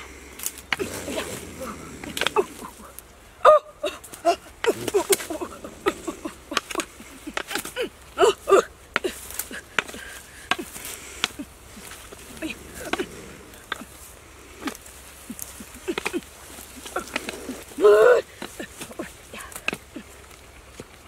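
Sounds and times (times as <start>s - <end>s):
rustling in undergrowth: 0.0s - 21.0s
woman grunting and crying out: 0.8s - 10.0s, 17.8s - 19.6s.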